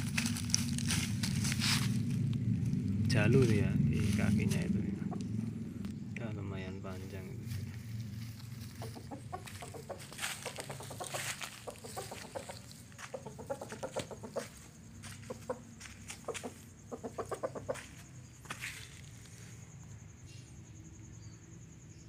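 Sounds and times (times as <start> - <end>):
rooster clucking: 3.4 - 5.9, 7.4 - 18.6.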